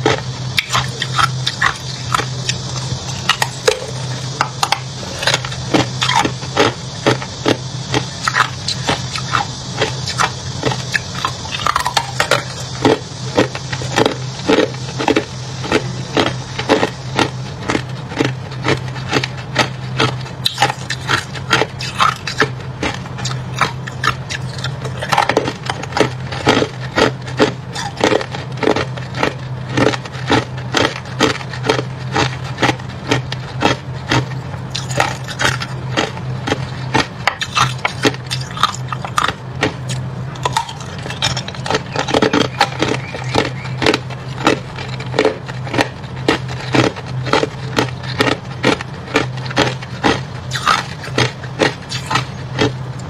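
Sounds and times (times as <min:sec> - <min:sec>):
steady low hum: 0:00.0 - 0:53.0
ice crunching: 0:23.2 - 0:52.8.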